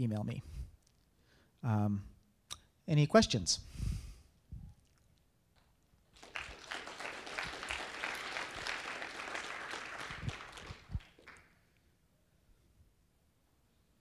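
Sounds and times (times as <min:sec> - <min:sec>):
audience applauding: 0:06.1 - 0:11.6.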